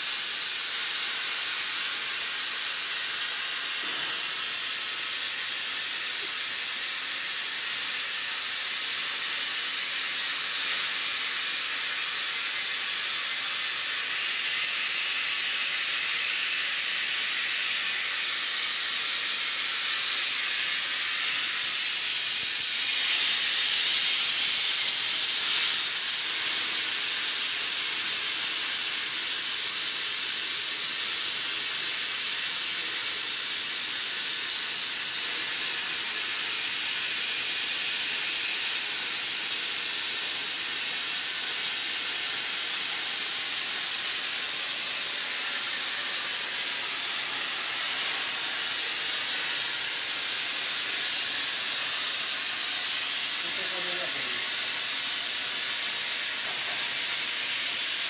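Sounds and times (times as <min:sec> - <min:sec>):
plasma torch hissing: 0:00.0 - 0:58.0.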